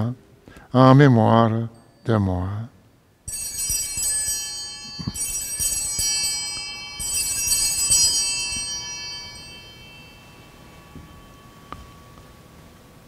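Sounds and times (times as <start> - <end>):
altar bells ringing: 3.2 - 13.0.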